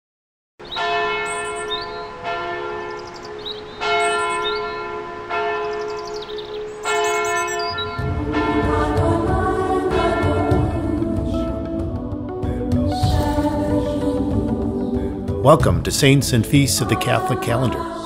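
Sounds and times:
church bells tolling: 0:00.6 - 0:10.8
music: 0:06.6 - 0:18.0.

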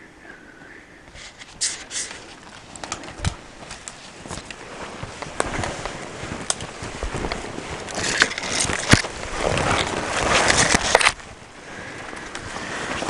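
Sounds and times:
footsteps crunching through snow: 0:01.1 - 0:11.4
twigs snapping: 0:01.3 - 0:11.3.

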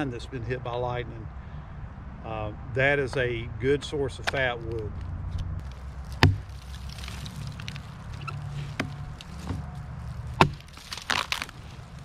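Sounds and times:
hatchet chopping into log: 0:06.1 - 0:06.6, 0:08.7 - 0:09.6, 0:10.3 - 0:11.5.

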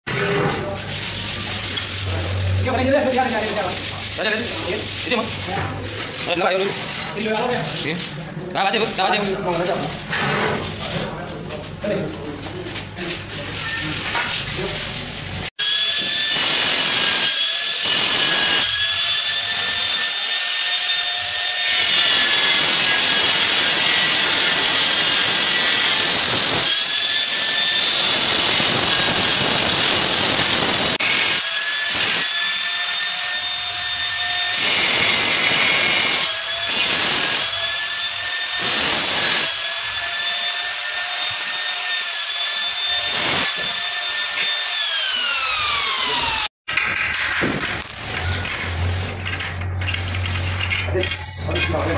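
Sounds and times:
grinder cutting into tile: 0:15.5 - 0:46.9
angle grinder whining: 0:15.6 - 0:46.5.

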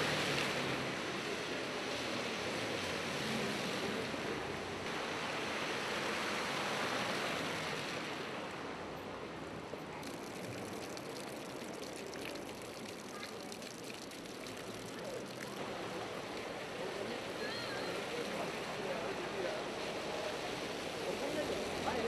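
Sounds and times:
tyres hissing on wet road: 0:00.0 - 0:22.0
water gushing from drainpipe: 0:10.0 - 0:16.0.

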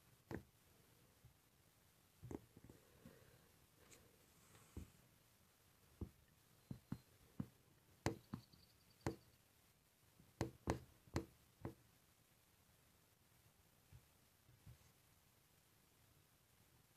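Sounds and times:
light knocks and taps: 0:00.3 - 0:00.5, 0:02.2 - 0:02.8, 0:06.0 - 0:09.2, 0:10.4 - 0:11.8.

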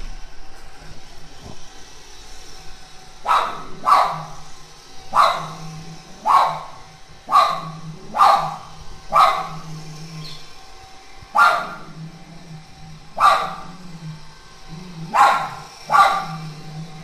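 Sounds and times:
small dog barking: 0:03.2 - 0:04.4, 0:05.1 - 0:05.6, 0:06.2 - 0:10.4, 0:11.3 - 0:11.9, 0:13.2 - 0:13.8, 0:15.1 - 0:16.6.

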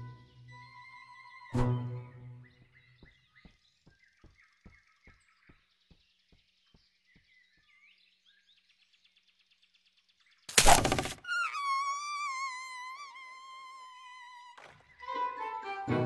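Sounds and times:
faint birdsong: 0:00.0 - 0:15.4
small animal footsteps pattering: 0:02.5 - 0:08.3.

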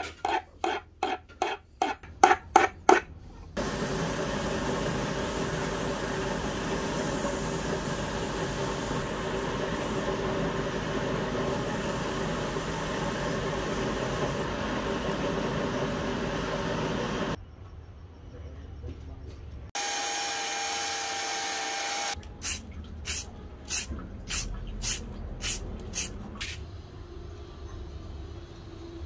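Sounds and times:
hand file on metal: 0:00.0 - 0:02.0
power tool motor humming: 0:19.8 - 0:22.2.

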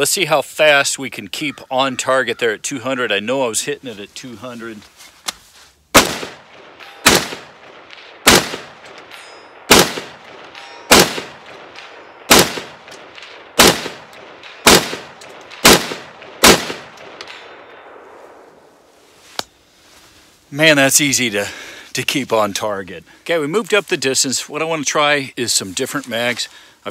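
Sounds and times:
rifle shots: 0:05.9 - 0:18.5.

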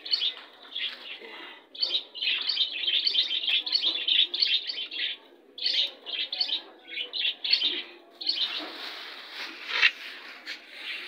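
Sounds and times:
rustling noise: 0:08.3 - 0:11.0.

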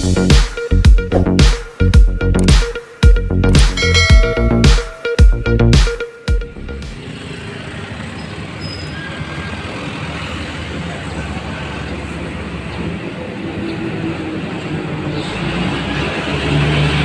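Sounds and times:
roadside rumble and hiss: 0:06.5 - 0:17.0.

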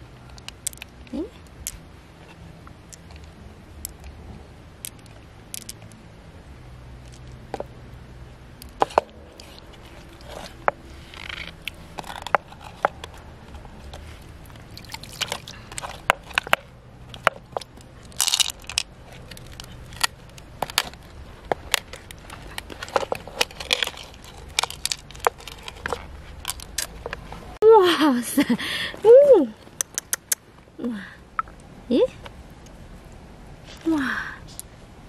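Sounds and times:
pearls clicking against shell: 0:00.3 - 0:01.8, 0:02.9 - 0:04.2, 0:04.8 - 0:06.0, 0:14.3 - 0:27.2, 0:29.6 - 0:30.4.

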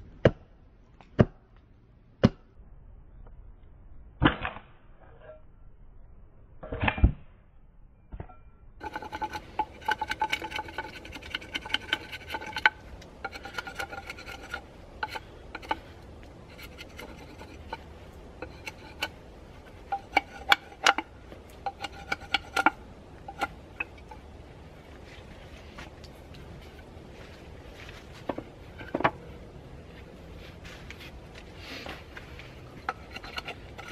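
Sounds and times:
knife scraping stick: 0:08.8 - 0:24.3, 0:30.4 - 0:33.9.

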